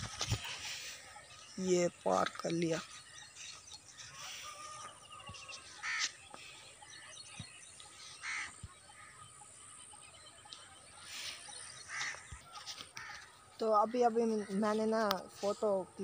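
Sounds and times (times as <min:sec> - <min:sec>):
small birds chirping: 0:00.0 - 0:16.0
crows cawing: 0:04.2 - 0:06.2, 0:08.2 - 0:09.2, 0:11.8 - 0:14.6.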